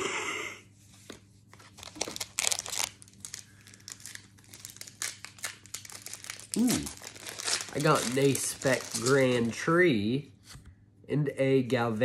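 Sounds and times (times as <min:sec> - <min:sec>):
foil wrapper crinkling and tearing: 0:01.7 - 0:09.6.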